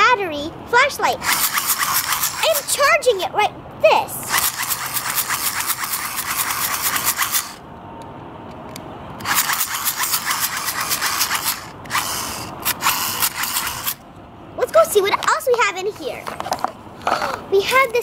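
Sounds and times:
hand-crank flashlight whirring: 0:01.2 - 0:02.7, 0:04.3 - 0:07.6, 0:09.2 - 0:14.0.

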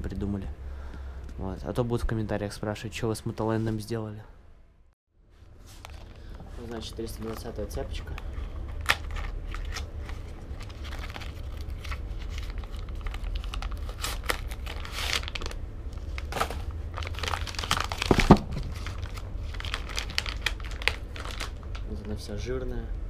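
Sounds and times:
packaging crinkling and tearing: 0:05.7 - 0:22.3
loud thump: 0:18.1 - 0:18.7.

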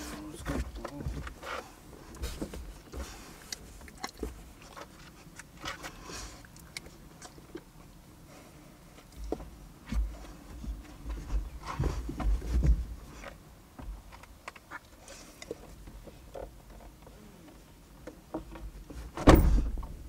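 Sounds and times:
low thumps: 0:19.2 - 0:20.0.

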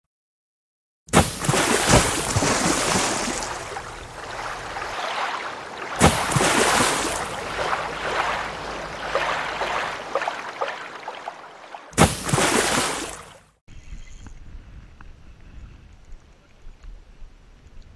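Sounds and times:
water rushing in surges: 0:01.2 - 0:13.5.

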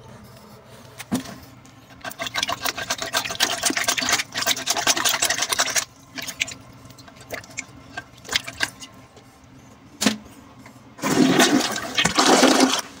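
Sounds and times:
water sloshing in toilet bowl: 0:01.9 - 0:09.0, 0:11.0 - 0:13.0
toilet flushing: 0:02.0 - 0:08.8, 0:11.0 - 0:13.0.

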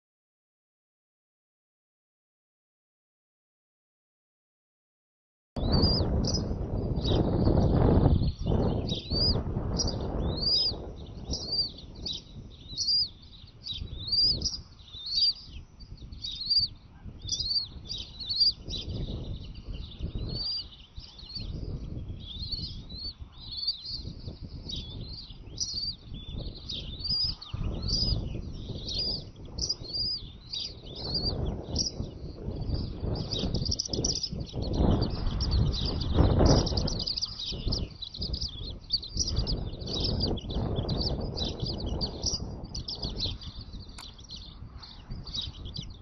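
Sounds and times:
low rumbling noise: 0:05.6 - 0:20.7
eagle chicks peeping: 0:05.6 - 0:46.0.

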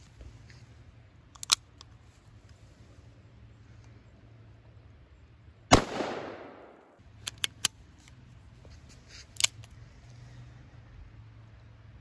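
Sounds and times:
revolver shot echoing: 0:05.7 - 0:07.0.

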